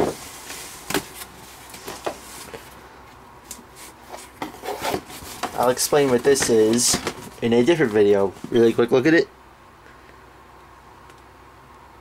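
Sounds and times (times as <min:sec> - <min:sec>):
cardboard rubbing and rustling: 0:03.7 - 0:08.8.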